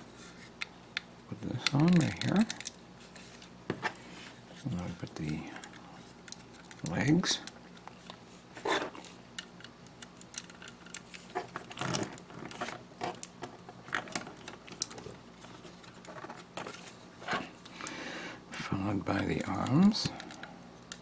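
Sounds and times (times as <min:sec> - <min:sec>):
plastic parts clicking: 0:00.6 - 0:02.8, 0:08.8 - 0:15.1
plastic scraping rustles: 0:10.3 - 0:17.6.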